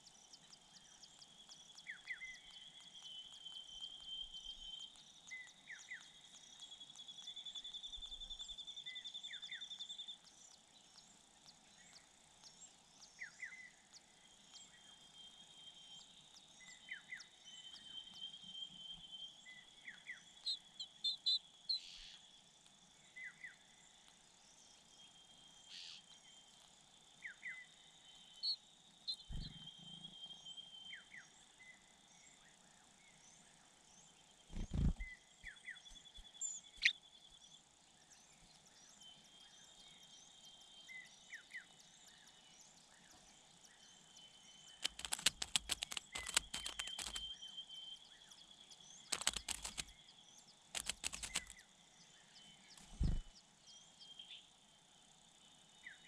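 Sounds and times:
small birds chirping: 0:00.0 - 0:56.0
sharp rustling clicks: 0:44.8 - 0:47.3, 0:49.1 - 0:49.9, 0:50.7 - 0:51.6.

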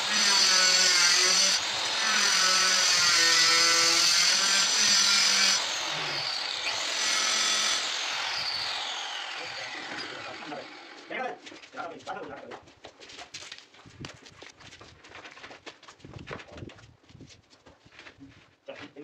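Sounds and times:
power tool whining: 0:00.0 - 0:11.1.

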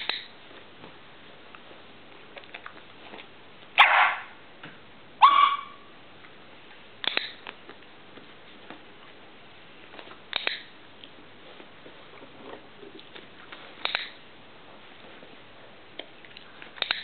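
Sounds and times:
dog barking: 0:03.8 - 0:04.3, 0:05.2 - 0:05.9.

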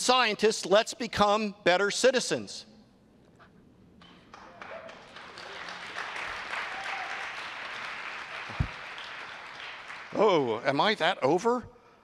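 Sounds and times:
audience applause: 0:04.3 - 0:10.5.

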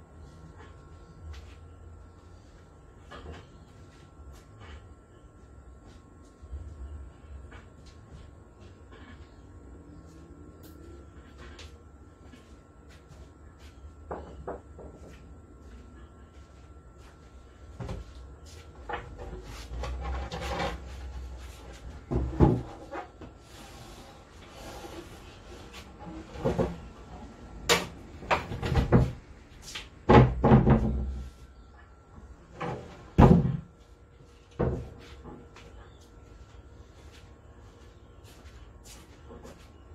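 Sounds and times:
wood scraping: 0:18.9 - 0:26.9.

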